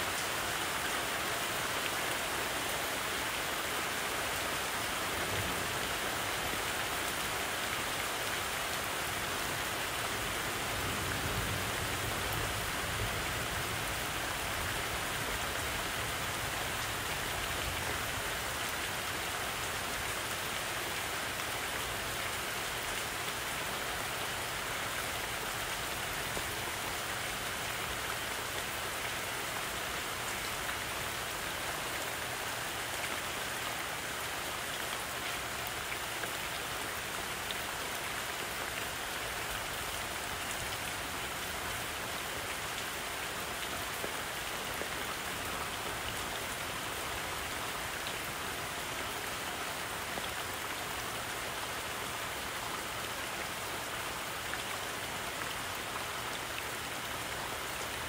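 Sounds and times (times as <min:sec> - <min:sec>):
rain falling on leaves: 0:00.0 - 0:58.0.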